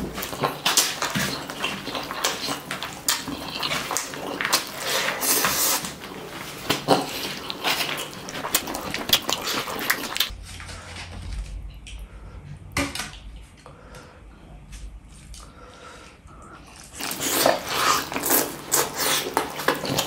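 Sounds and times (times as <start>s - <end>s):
wet squelching of food in fingers: 0.0s - 10.3s
open-mouthed chewing and lip smacking: 0.0s - 10.4s, 16.3s - 20.0s
steady low hum: 0.0s - 20.0s.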